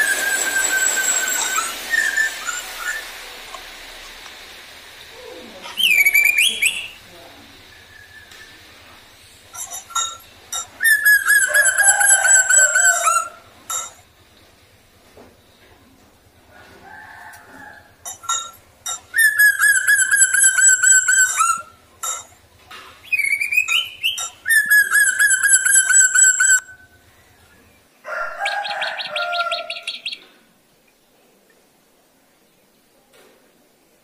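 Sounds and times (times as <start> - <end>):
rising whistle: 0.0 - 3.4, 5.8 - 8.6, 10.8 - 13.9, 19.2 - 21.8, 23.1 - 27.0
bird chattering: 5.6 - 7.0, 9.5 - 14.0, 18.1 - 22.3, 23.0 - 26.7
bird singing trilled phrases: 5.6 - 7.0, 9.6 - 14.0, 18.2 - 22.3, 23.0 - 27.7.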